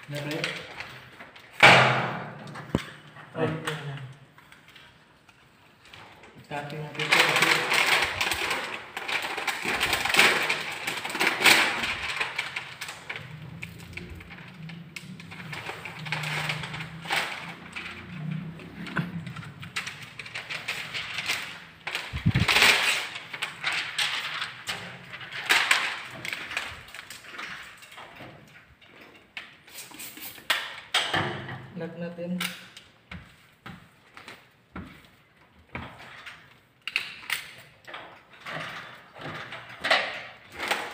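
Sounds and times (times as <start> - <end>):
plastic film crinkling: 4.4 - 28.0.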